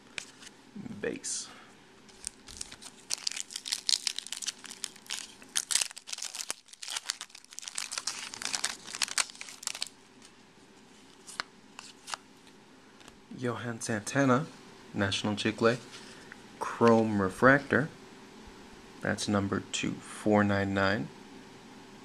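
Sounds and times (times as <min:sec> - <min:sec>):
foil wrapper crinkling and tearing: 0:02.1 - 0:10.3, 0:11.1 - 0:12.2.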